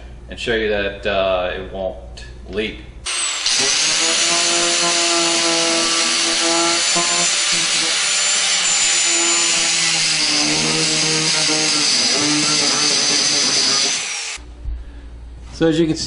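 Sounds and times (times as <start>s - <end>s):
angle grinder grinding plastic: 3.1s - 14.4s.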